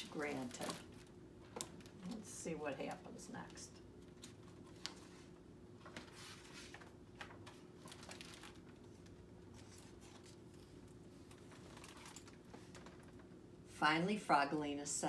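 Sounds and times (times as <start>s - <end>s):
faint room hum: 0.0s - 15.0s
paper pages rustling: 4.0s - 13.3s.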